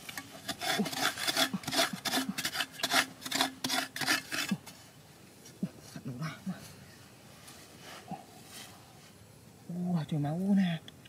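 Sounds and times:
metal blade scraping hard earth: 0.0 - 4.8.

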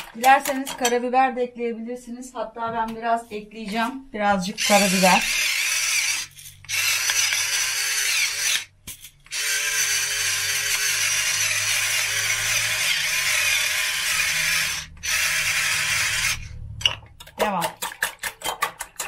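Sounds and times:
electric pepper mill grinding: 4.6 - 16.6.

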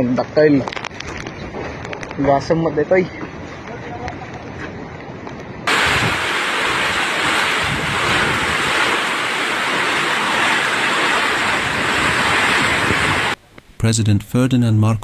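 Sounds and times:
strong wind: 0.6 - 13.4
wind buffeting microphone: 0.8 - 13.4
heavy rain: 5.7 - 13.4.

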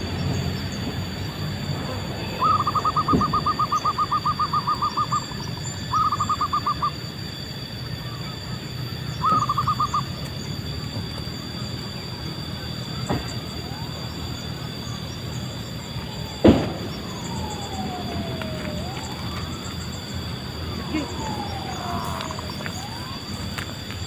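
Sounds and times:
dove cooing: 1.5 - 7.0, 9.0 - 10.3, 12.6 - 23.9.

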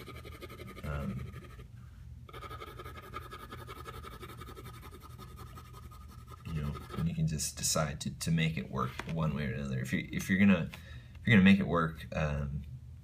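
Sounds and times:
pencil scratching on paper: 0.0 - 1.7, 2.3 - 7.2.

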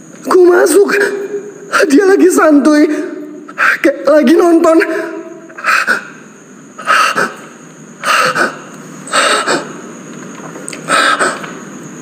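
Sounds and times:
man breathing heavily: 8.0 - 9.8.

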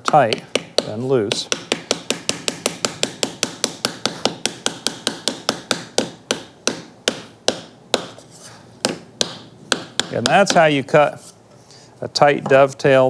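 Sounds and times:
small hammer tapping wood: 0.1 - 8.1, 8.8 - 10.7.

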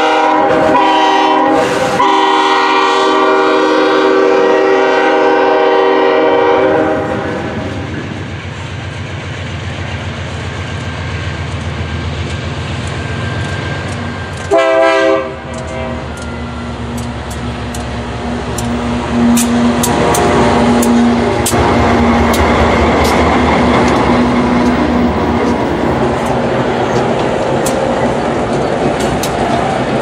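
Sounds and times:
train horn: 0.0 - 8.0, 14.5 - 16.6, 18.4 - 25.5
diesel locomotive rumbling: 0.0 - 30.0.

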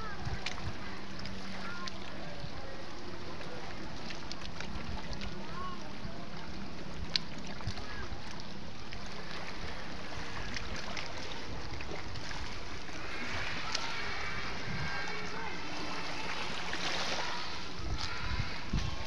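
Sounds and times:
wind on microphone: 0.0 - 1.6, 9.5 - 19.0
gentle sea water: 0.0 - 19.0.

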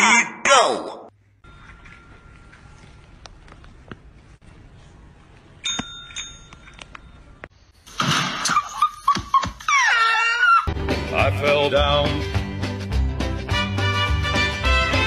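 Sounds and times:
call bell dings: 5.6 - 7.2.

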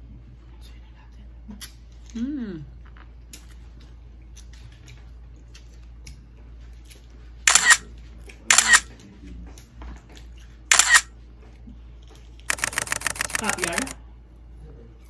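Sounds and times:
camera shutter snaps: 7.5 - 7.8, 8.5 - 8.9, 10.7 - 11.1, 12.5 - 14.0.

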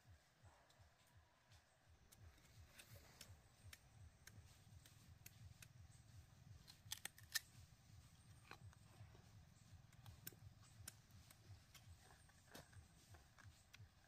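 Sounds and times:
sharp snaps: 2.1 - 7.7.

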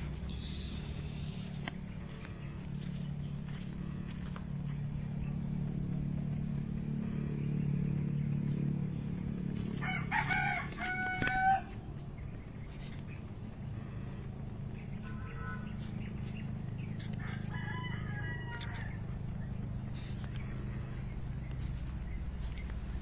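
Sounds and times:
steady low hum: 0.0 - 23.0
rooster crowing: 9.8 - 11.9, 17.2 - 19.1.

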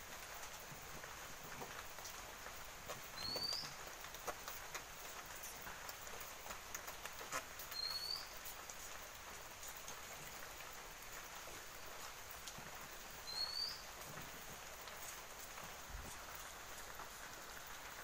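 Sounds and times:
deep-frying sizzle with crackles: 0.0 - 18.0
bird chirping: 3.1 - 3.8, 7.7 - 8.4, 13.2 - 13.9.

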